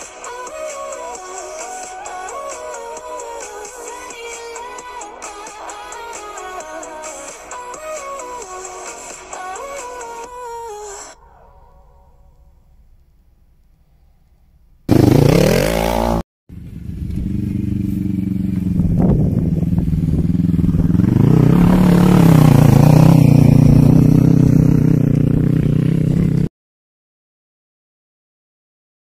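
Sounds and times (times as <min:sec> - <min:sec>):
quad engine revving: 0:14.9 - 0:26.5.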